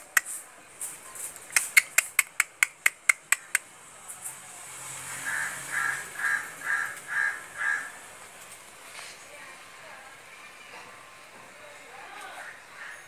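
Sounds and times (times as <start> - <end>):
rapid sharp clicks: 1.6 - 3.6
bird cawing: 5.1 - 8.0, 12.4 - 13.0.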